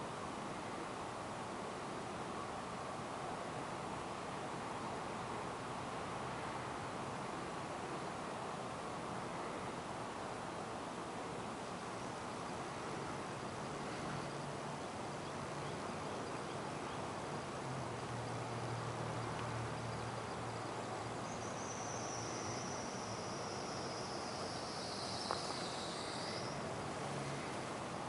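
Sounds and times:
outdoor night hiss: 0:00.0 - 0:28.0
high-pitched insect trill: 0:19.8 - 0:26.7.

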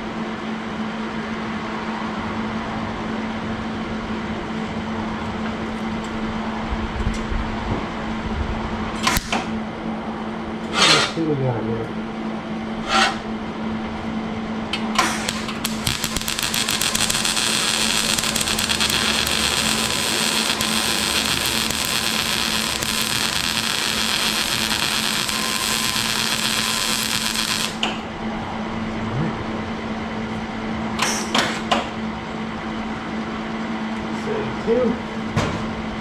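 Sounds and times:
welding arc crackling: 0:15.0 - 0:28.0
low hum: 0:15.2 - 0:30.1.

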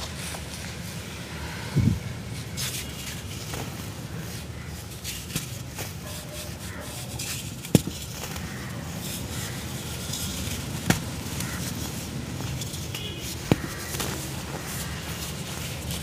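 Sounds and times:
steady low hum: 0:00.7 - 0:02.6
cement crumbling by hand: 0:06.9 - 0:16.0.

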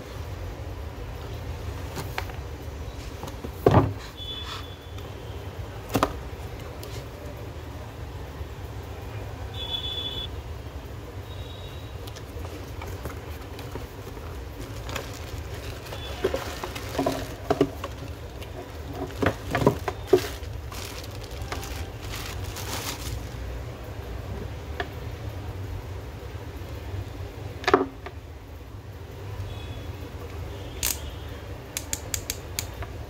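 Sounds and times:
cardboard and plastic rustling: 0:01.7 - 0:02.4, 0:03.0 - 0:05.1, 0:05.8 - 0:07.2, 0:12.0 - 0:23.6.

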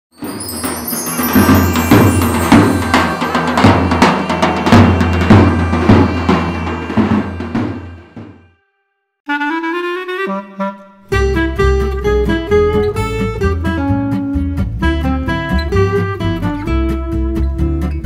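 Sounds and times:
steady drum beat: 0:00.2 - 0:08.4.

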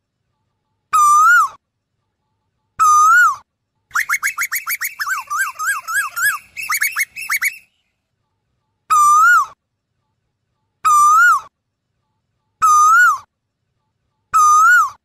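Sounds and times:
bird whistled calls: 0:02.8 - 0:07.8.

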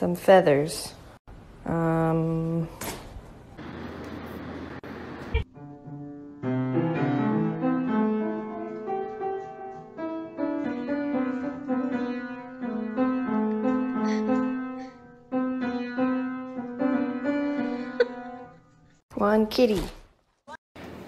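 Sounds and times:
piano playing: 0:04.8 - 0:19.0.

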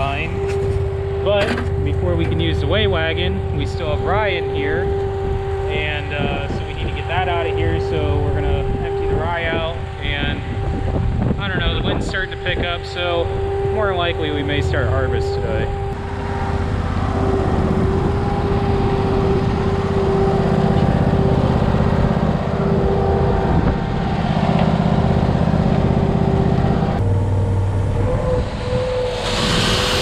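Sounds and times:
engine humming: 0:00.0 - 0:30.0
grain pouring hiss: 0:29.0 - 0:30.0.

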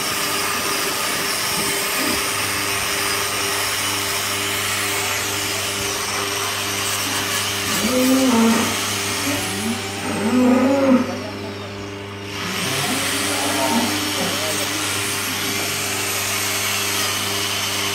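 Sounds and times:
angle grinder whining on hoof: 0:00.0 - 0:17.9
low hum: 0:07.7 - 0:16.9.

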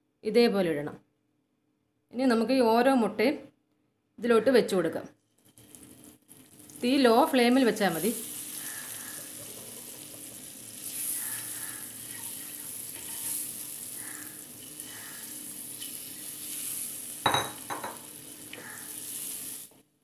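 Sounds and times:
eggs sizzling in oil: 0:05.2 - 0:19.8.

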